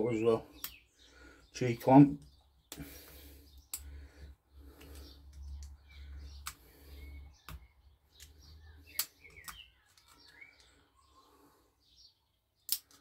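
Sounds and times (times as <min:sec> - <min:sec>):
metal pick clicking and scraping: 0:12.7 - 0:13.0.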